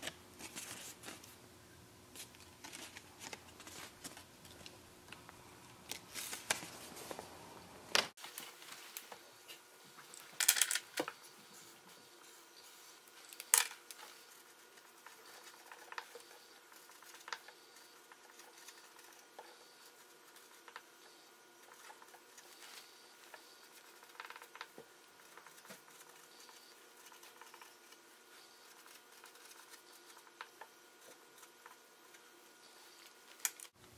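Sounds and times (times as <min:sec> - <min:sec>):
low background hum: 0:00.0 - 0:33.9
paper rustling: 0:00.4 - 0:01.4, 0:02.2 - 0:04.7, 0:05.9 - 0:07.3.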